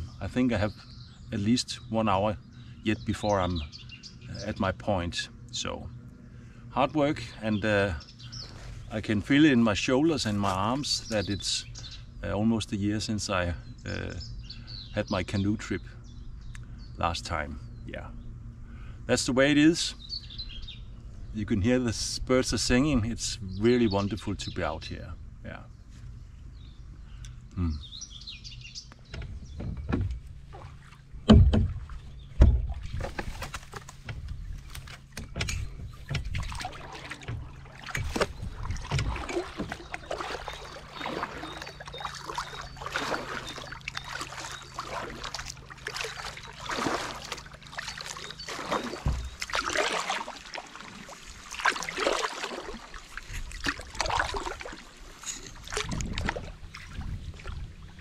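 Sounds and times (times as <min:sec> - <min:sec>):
paddle strokes splashing in water: 0:30.3 - 0:35.2, 0:35.8 - 0:58.0
loud thumps: 0:31.2 - 0:34.4, 0:49.0 - 0:49.4.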